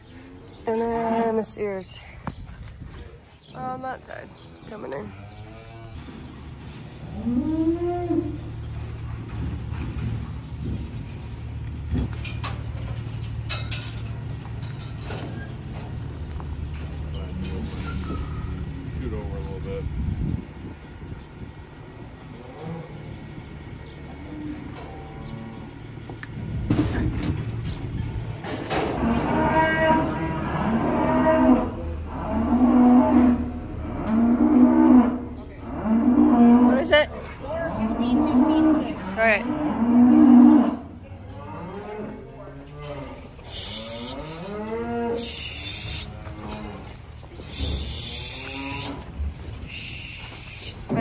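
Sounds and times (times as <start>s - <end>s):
cattle mooing: 7.1s - 8.5s, 28.7s - 51.0s.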